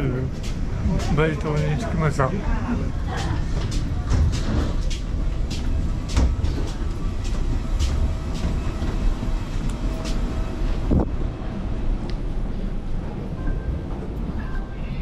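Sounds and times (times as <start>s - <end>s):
footsteps on metal: 3.1s - 9.0s.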